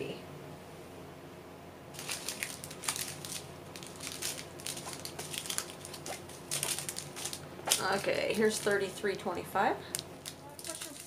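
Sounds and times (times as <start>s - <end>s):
plastic baggies crinkling: 1.9s - 8.9s, 9.8s - 11.0s.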